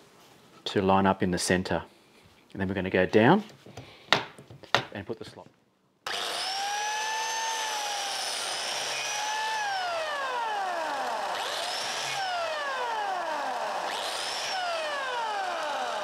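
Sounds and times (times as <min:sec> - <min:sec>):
biscuit jointer motor whining: 0:06.1 - 0:16.0.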